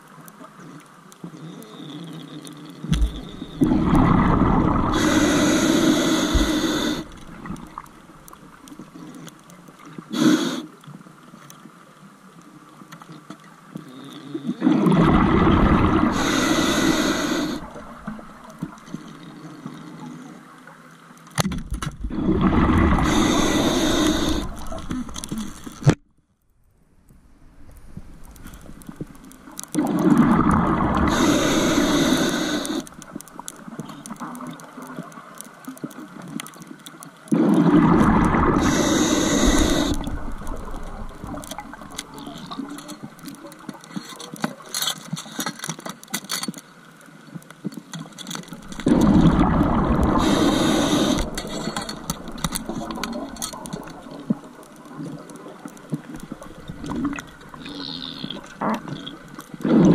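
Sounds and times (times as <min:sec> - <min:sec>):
faint crackling and clicking: 0:00.0 - 0:59.9
exhaled bubbles gurgling: 0:02.8 - 0:09.0, 0:14.6 - 0:19.4, 0:22.0 - 0:26.0, 0:28.3 - 0:36.6, 0:37.3 - 0:43.6, 0:48.5 - 0:59.9.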